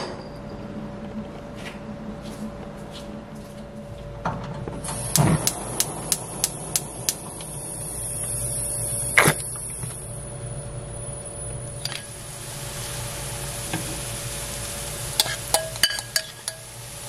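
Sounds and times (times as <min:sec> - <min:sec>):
gas igniter clicking: 0:04.8 - 0:08.4
hiss of gas: 0:04.8 - 0:10.6, 0:11.3 - 0:17.0.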